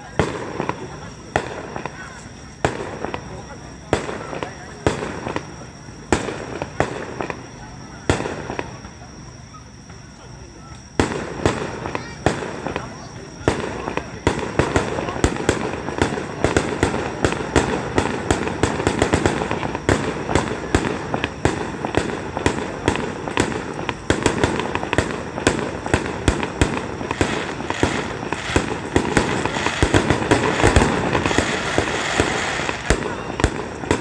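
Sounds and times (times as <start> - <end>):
firework shells bursting: 11.0 - 34.0.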